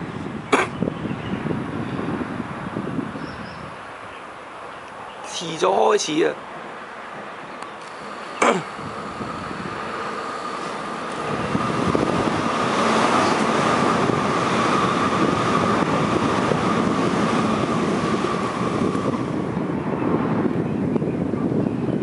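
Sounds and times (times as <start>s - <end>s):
high whine of train: 0.0s - 22.0s
electric train rumbling past: 6.0s - 21.5s.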